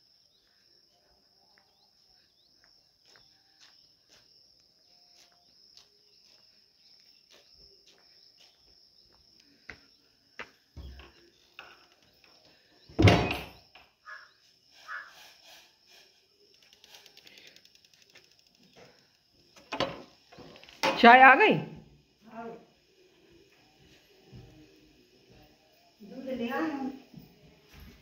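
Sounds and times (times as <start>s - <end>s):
high insect trill: 0.0s - 28.0s
soft footsteps: 0.4s - 11.5s, 27.1s - 28.0s.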